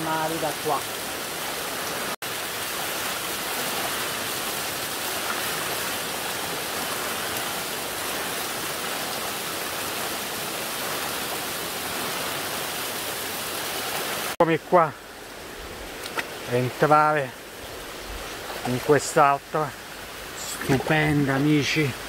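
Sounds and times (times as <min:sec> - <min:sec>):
water falling and splashing: 0:00.0 - 0:22.0.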